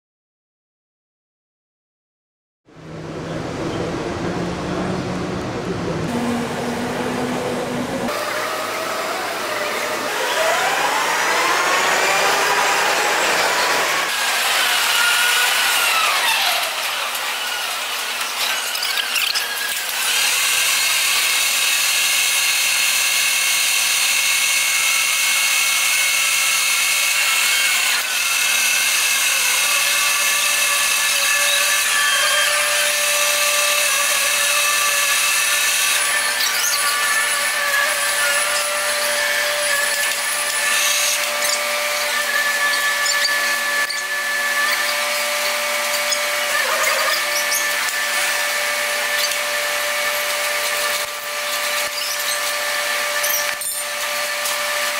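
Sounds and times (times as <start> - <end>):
squeaky warbling chatter: 46.6 - 47.8.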